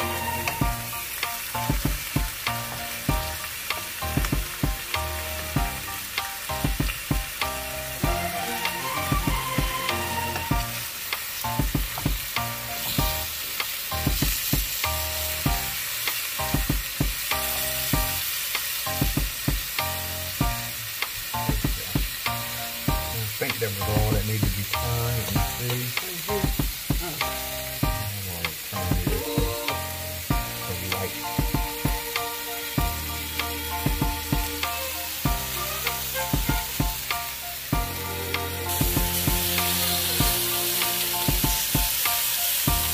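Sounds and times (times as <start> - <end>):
fish sizzling in pan: 0.0 - 42.9.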